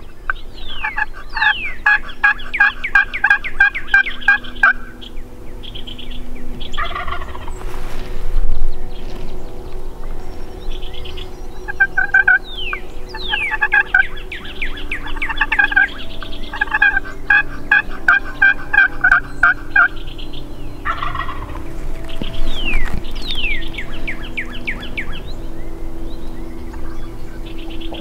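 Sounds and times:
whistled bird notes: 0.0 - 28.0
turkey gobbling: 0.3 - 5.9, 6.6 - 7.7, 11.7 - 25.2.

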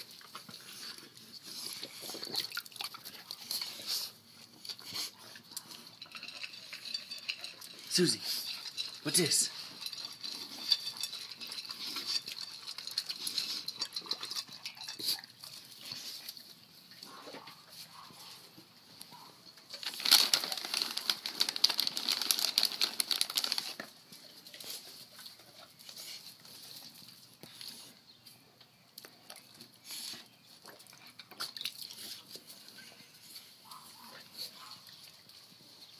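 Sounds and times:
dog lapping from steel bowl: 1.7 - 4.2, 5.2 - 15.8
plastic bag crinkling: 19.7 - 24.0.

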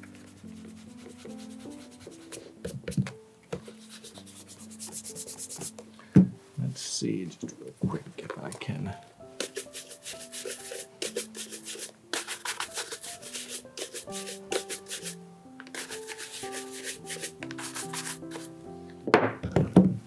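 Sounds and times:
shoe brush strokes on leather: 9.4 - 15.2, 15.8 - 18.5.

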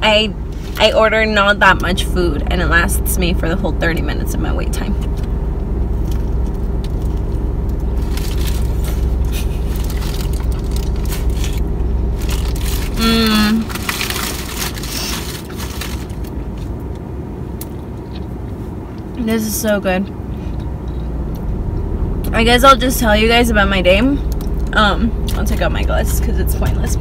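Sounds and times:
car low hum: 0.0 - 27.0
wrapper crinkling: 7.9 - 16.4.

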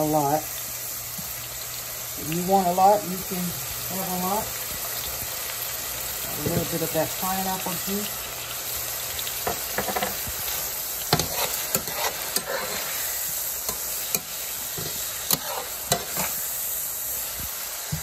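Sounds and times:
food sizzling in frying pan: 0.0 - 18.0
spatula scraping pan: 9.4 - 16.6.

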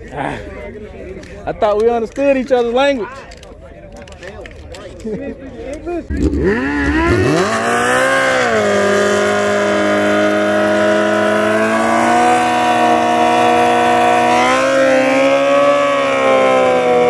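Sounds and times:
motorcycle engines revving high: 6.1 - 17.0.

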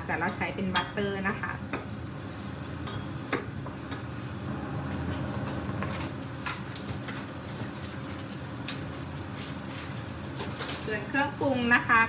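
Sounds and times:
steady low hum: 0.0 - 6.4
onion sizzling in butter: 0.0 - 12.0.

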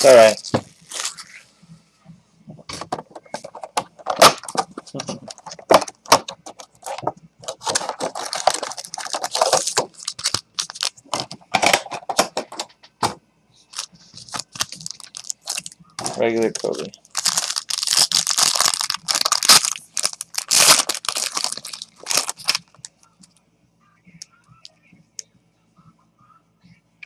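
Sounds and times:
plastic wrapping crinkling: 0.0 - 1.4, 2.9 - 11.4, 13.7 - 22.9
cardboard rustling: 2.8 - 11.3, 13.8 - 22.6.

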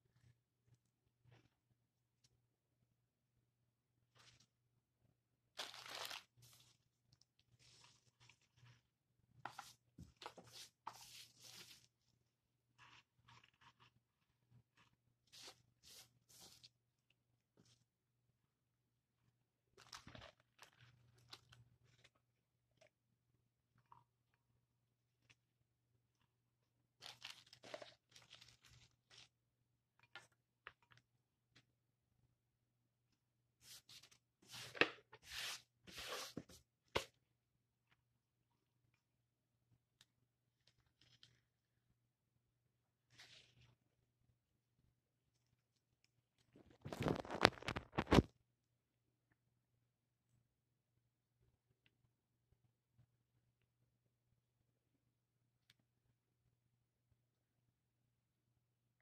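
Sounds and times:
rustling and crunching of dried moss: 5.6 - 6.8.

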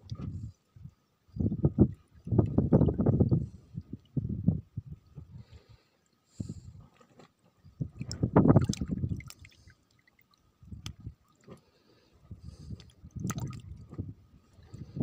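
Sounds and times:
water sloshing in bucket: 8.0 - 10.3, 13.2 - 14.0.

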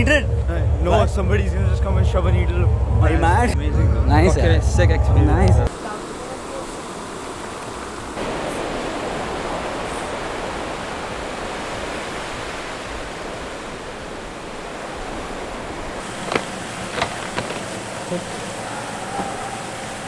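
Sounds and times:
waves breaking on sandy beach: 5.7 - 20.0.

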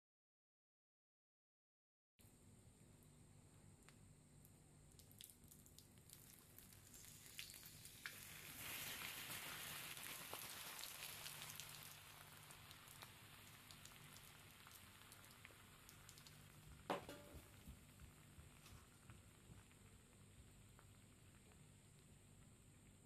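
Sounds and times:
water hissing on burning plastic: 5.0 - 23.0.

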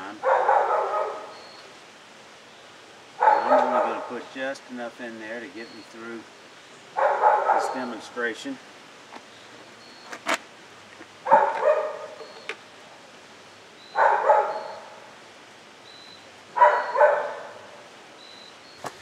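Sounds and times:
dog barking: 0.2 - 1.4, 3.2 - 4.2, 7.0 - 7.9, 11.2 - 12.2, 14.0 - 14.9, 16.6 - 17.7.

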